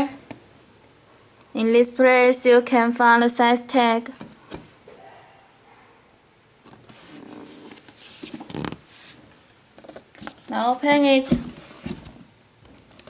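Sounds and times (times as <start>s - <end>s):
cardboard box rustling: 6.7s - 9.2s.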